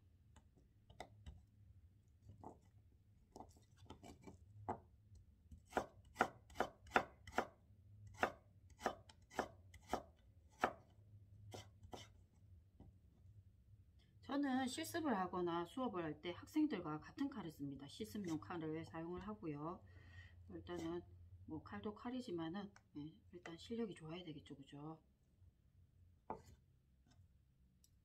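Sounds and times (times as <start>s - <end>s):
knife knocking on cutting board: 26.3s - 26.6s.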